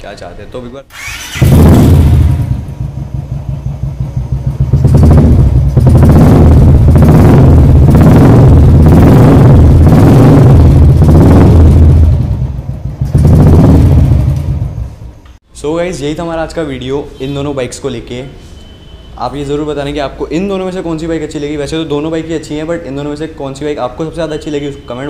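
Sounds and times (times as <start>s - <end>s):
motorcycle engine revving: 0.9s - 15.0s.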